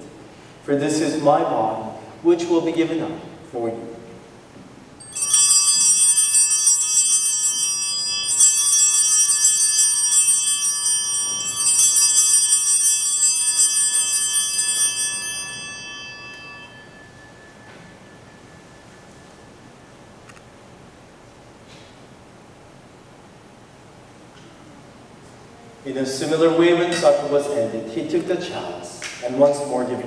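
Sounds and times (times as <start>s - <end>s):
small bells ringing: 5.0s - 20.2s.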